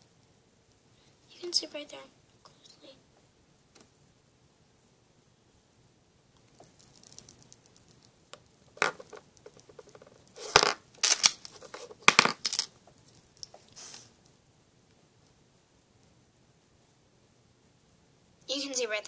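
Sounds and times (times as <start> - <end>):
plastic tubes clicking and clattering: 8.8 - 12.7.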